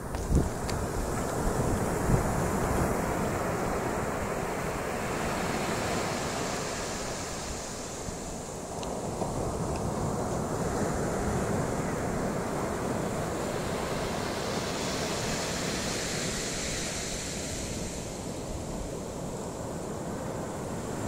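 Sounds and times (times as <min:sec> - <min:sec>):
small waves washing on beach: 0:00.0 - 0:21.0.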